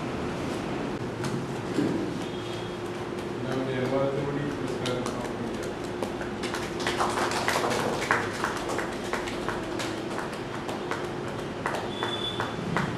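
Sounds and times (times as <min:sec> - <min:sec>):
audience clapping: 0:03.4 - 0:12.9.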